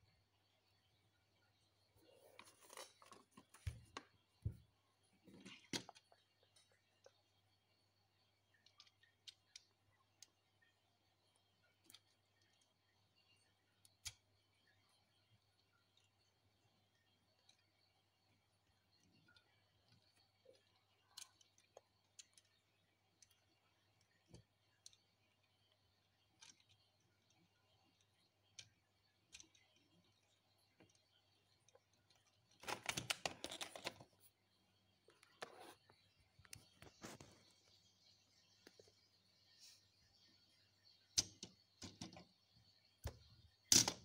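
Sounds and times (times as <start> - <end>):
plastic bricks clicking together: 31.9 - 34.1, 41.2 - 42.3, 43.0 - 44.0
plastic model clattering on desk: 32.6 - 34.1.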